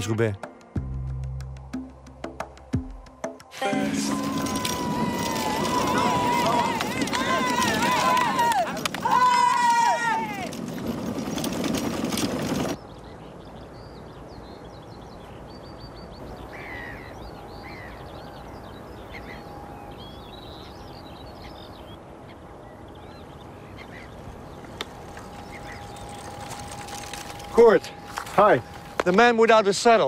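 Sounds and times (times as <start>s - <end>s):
loud dense noise: 3.6s - 8.4s
birds chirping and trilling: 10.6s - 29.5s
outdoor background hiss: 12.8s - 30.0s.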